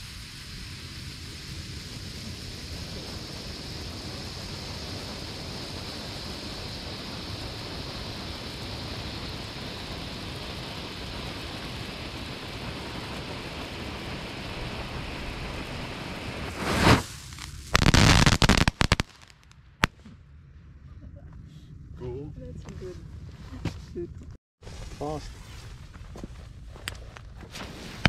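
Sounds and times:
firework burst: 0:00.0 - 0:19.9, 0:27.5 - 0:28.0
firework crackling bangs: 0:00.0 - 0:19.9, 0:27.5 - 0:28.0
flare hissing: 0:00.0 - 0:19.9, 0:27.5 - 0:28.0.

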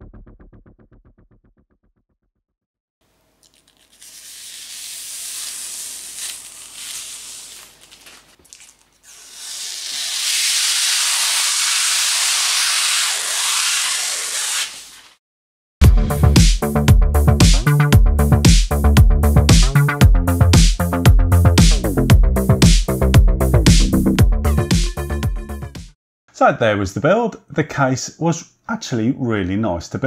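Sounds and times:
plastic film peeling off glass: 0:03.3 - 0:15.2.

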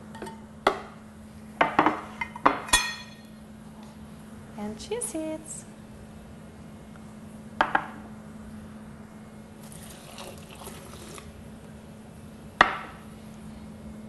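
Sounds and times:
dish knocking on counter: 0:07.6 - 0:08.0, 0:12.6 - 0:13.0
water pouring and splashing: 0:09.6 - 0:11.3.

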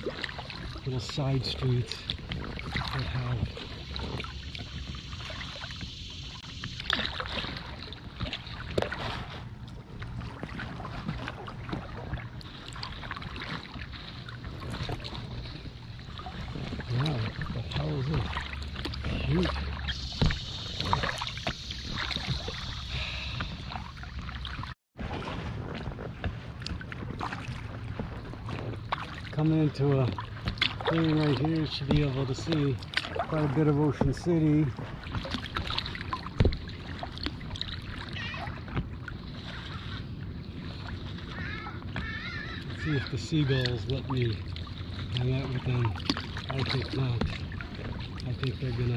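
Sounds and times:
water lapping against kayak hull: 0:00.0 - 0:48.9
faint seagull calls: 0:38.1 - 0:38.6, 0:41.3 - 0:43.6.

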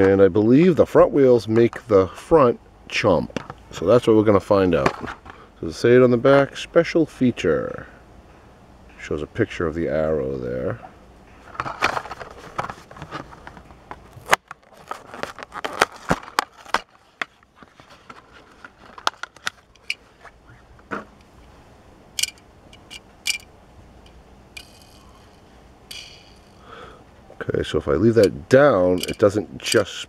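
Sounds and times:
plastic packaging crinkling: 0:11.7 - 0:19.9.

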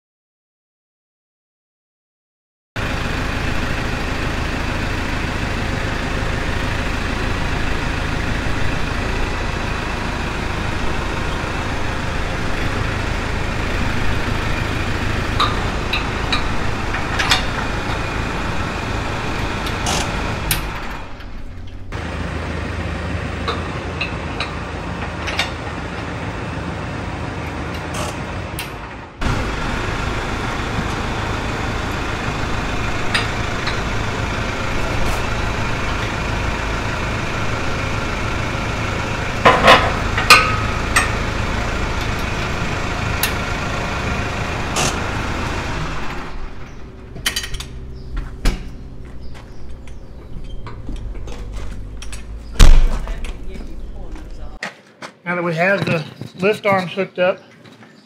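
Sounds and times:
tractor engine idling: 0:02.8 - 0:54.6.

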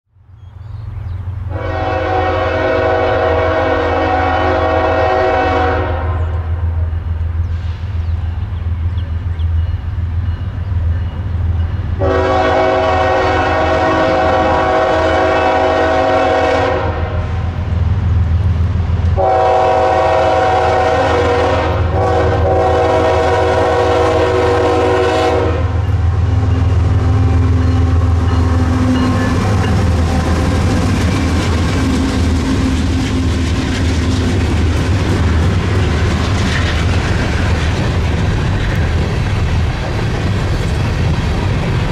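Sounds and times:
rail and wheel noise: 0:00.1 - 0:41.9
train horn blasts: 0:01.5 - 0:06.9, 0:12.0 - 0:17.6, 0:19.2 - 0:31.4
wheels clacking over rail joints: 0:27.6 - 0:41.9.

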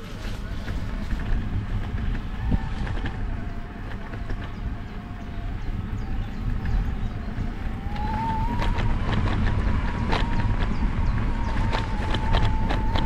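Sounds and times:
bike tyres rumbling on gravel: 0:00.0 - 0:13.0
wind on microphone: 0:00.0 - 0:13.0
small rattles and clicks: 0:00.2 - 0:07.2, 0:07.8 - 0:13.0.

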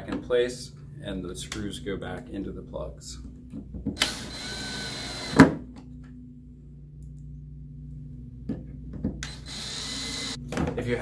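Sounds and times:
cordless drill running: 0:04.0 - 0:05.5, 0:09.2 - 0:10.4.

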